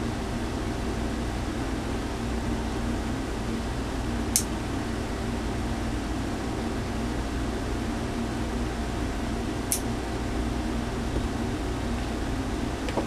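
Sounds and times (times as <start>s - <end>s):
electrical hum with fan hiss: 0.0s - 13.0s
sharp click: 9.7s - 9.9s.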